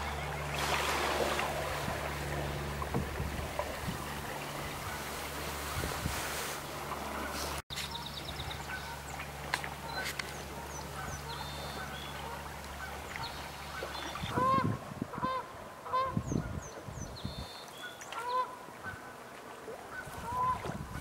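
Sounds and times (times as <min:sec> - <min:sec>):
geese honking: 0:07.0 - 0:09.2, 0:09.8 - 0:16.2, 0:17.8 - 0:19.1, 0:19.9 - 0:21.0.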